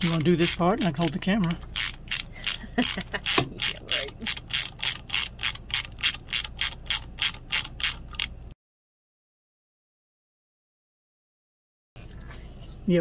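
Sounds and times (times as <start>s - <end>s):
socket ratchet clicking: 0.0s - 8.4s.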